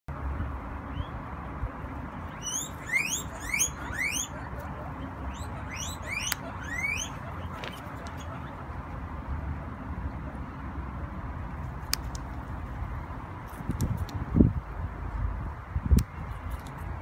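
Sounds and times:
guinea pig squealing: 2.3 - 8.6.

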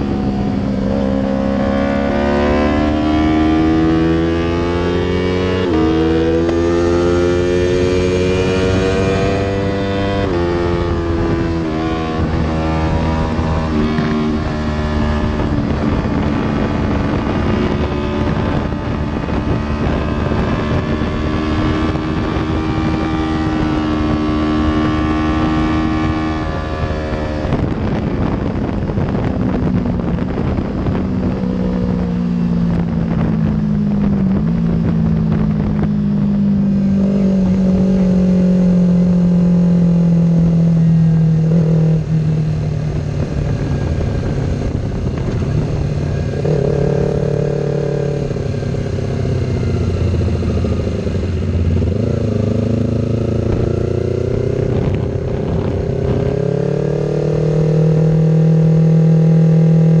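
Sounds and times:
motorcycle engine running: 0.0 - 60.0
wind rush: 0.0 - 60.0.

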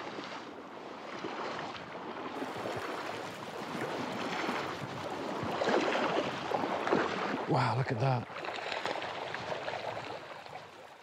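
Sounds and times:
footsteps splashing in river: 0.0 - 7.5, 8.2 - 11.0
river water rushing: 2.4 - 10.9.

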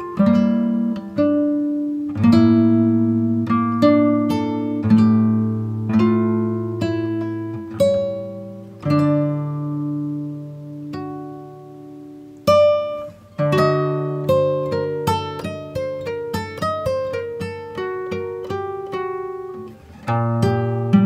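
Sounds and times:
plucked acoustic guitar: 0.0 - 21.0.

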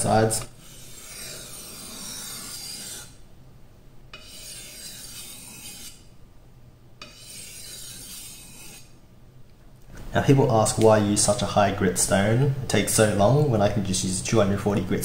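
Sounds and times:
blade rasping on whetstone: 0.6 - 3.2, 4.1 - 6.1, 7.0 - 8.9.

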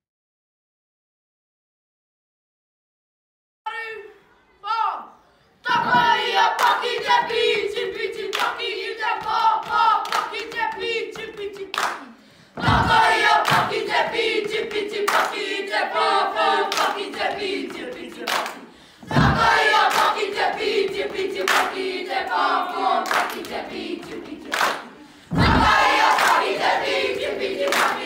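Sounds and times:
children chanting together: 5.6 - 28.0
hand claps and body slaps: 6.5 - 7.2, 8.3 - 15.5, 16.7 - 22.4, 23.0 - 26.7, 27.6 - 28.0.

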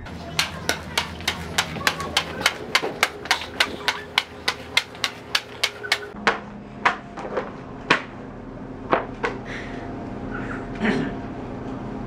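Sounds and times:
flippers slapping on hard floor: 0.3 - 8.1.

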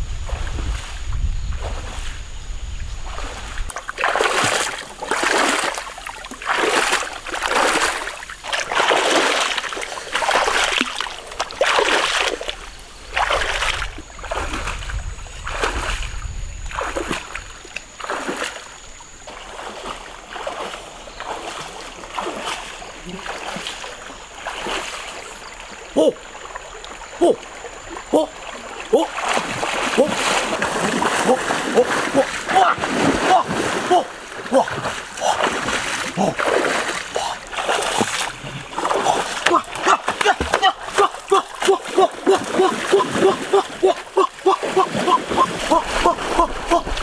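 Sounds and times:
water splashing from wading: 3.0 - 47.0.

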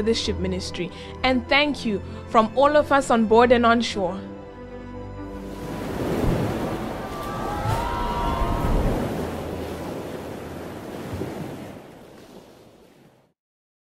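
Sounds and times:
ocean surf: 5.3 - 13.3
wind rushing: 5.4 - 11.9.

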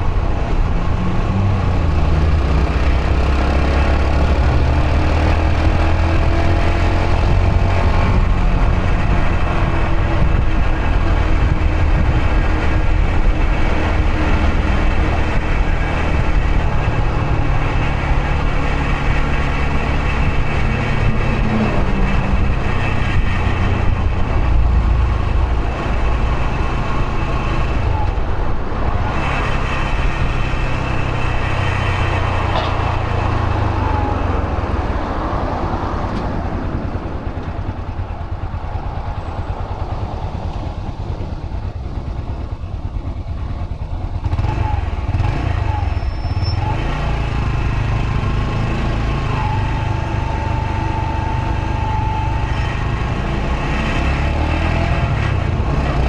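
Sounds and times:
motorcycle engine accelerating: 0.0 - 56.0
road and traffic noise: 0.0 - 56.0.

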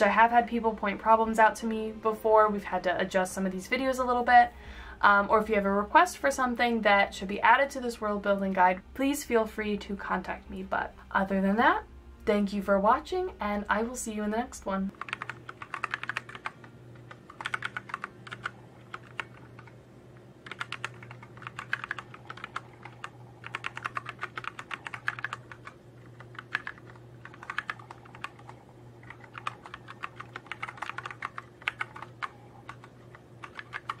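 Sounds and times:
low steady hum: 0.0 - 34.0
fast typing on keyboard: 14.9 - 34.0.

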